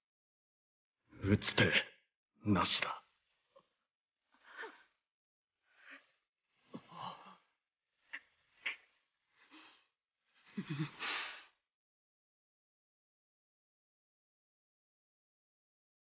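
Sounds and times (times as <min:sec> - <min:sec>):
people gasping and sighing: 0:04.3 - 0:05.0, 0:05.7 - 0:11.6.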